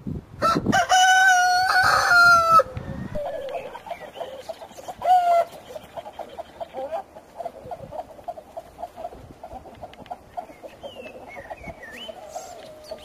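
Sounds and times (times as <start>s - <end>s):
rooster crowing: 0.4s - 3.8s
chicken clucking: 2.6s - 13.0s.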